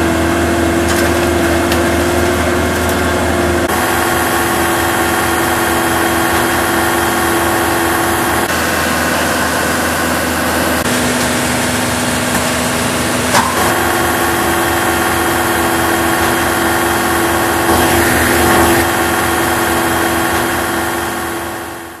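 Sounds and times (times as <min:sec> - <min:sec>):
tractor engine driving wood chipper: 0:00.0 - 0:22.0.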